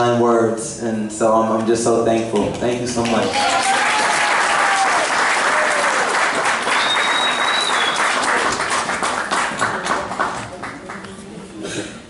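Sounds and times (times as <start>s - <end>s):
audience applauding: 3.0s - 11.2s
voices cheering: 3.3s - 8.5s
high whistle: 6.7s - 8.2s.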